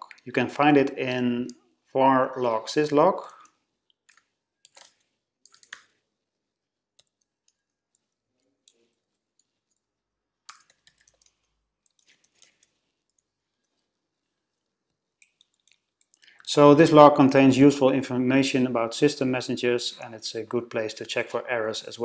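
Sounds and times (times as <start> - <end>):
faint keyboard typing: 2.8 - 16.6.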